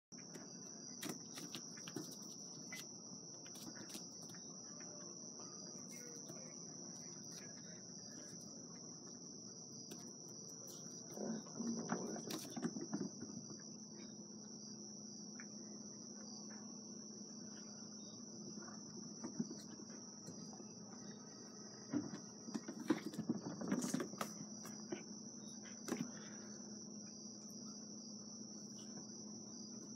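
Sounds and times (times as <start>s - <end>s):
crickets trilling: 0.1s - 29.9s
scuffling and knocks: 21.9s - 25.0s.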